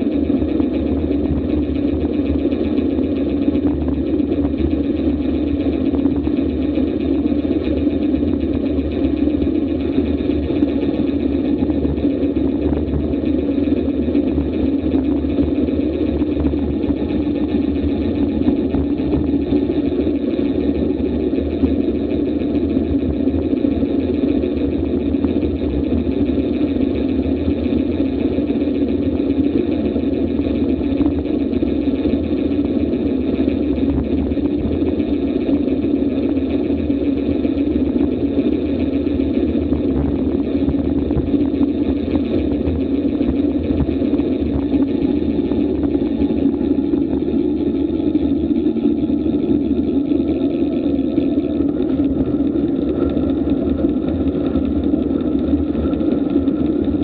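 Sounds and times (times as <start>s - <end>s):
wind rushing on microphone: 33.0s - 57.0s.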